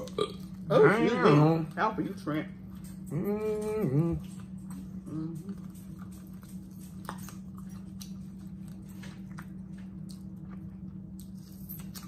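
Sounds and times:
steady low hum: 0.0s - 12.0s
wet chewing and lip smacking: 2.6s - 12.0s.

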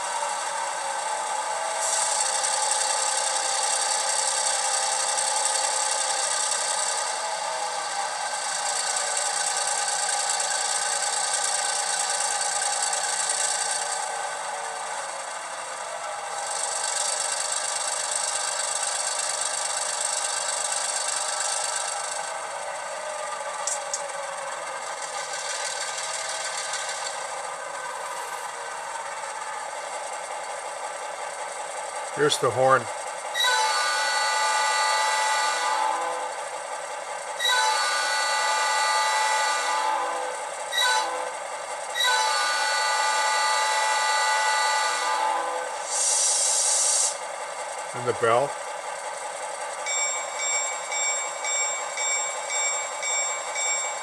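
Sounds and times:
thin diesel engine sound from speakers: 0.0s - 40.0s, 42.0s - 54.0s
locomotive air horn blasts: 33.4s - 36.3s, 37.4s - 41.3s, 42.0s - 45.7s.

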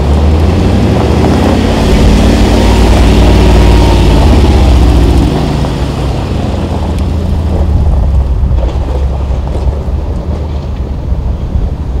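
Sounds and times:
car engine droning: 0.0s - 12.0s.

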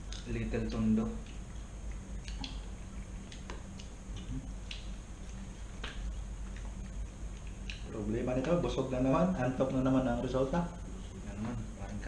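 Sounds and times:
steady low hum: 0.0s - 12.0s
chewing: 1.2s - 7.9s.

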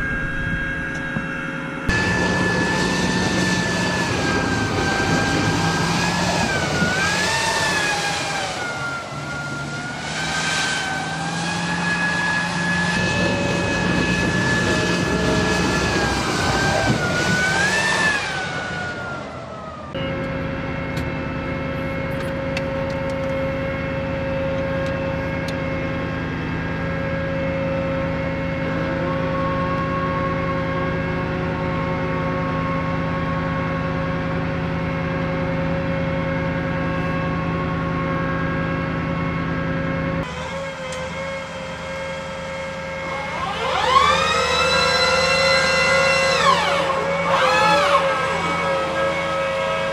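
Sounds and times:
steady hum with whine: 0.0s - 43.5s
rising launcher drive whine: 0.0s - 49.9s
diesel engine driving through mud: 1.9s - 49.9s.

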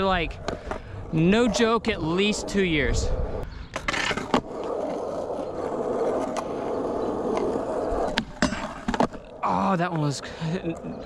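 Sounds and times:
skateboard wheels rolling on concrete: 0.0s - 11.0s
skateboard pop and clatter on rail: 8.1s - 9.2s.

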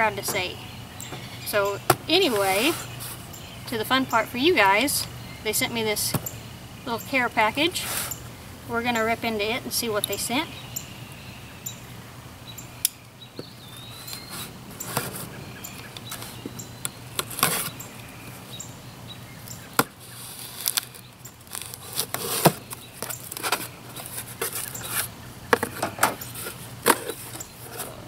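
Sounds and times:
cardboard flaps scraping: 13.8s - 16.6s, 19.8s - 25.1s
packing tape tearing: 19.8s - 25.1s.

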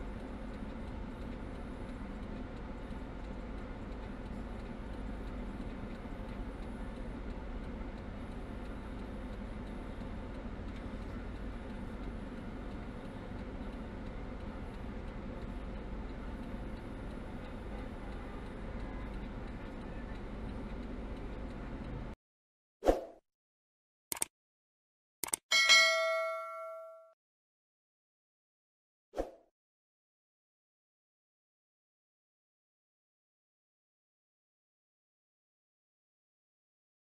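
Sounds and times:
traffic road noise: 0.2s - 22.2s
sharp ding: 25.5s - 27.2s.

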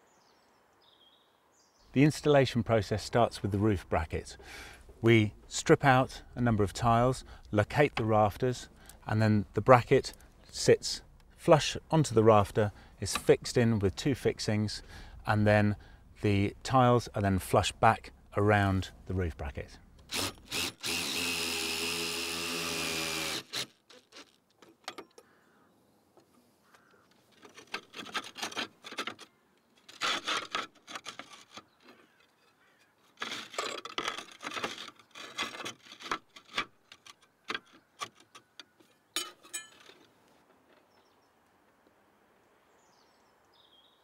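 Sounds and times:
cordless drill driving a screw: 20.0s - 24.4s
roof tiles clinking and scraping: 27.2s - 40.9s.

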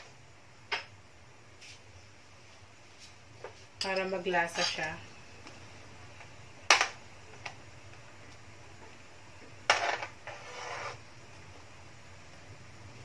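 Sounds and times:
spoon scraping wok: 3.8s - 5.2s, 9.7s - 11.1s.

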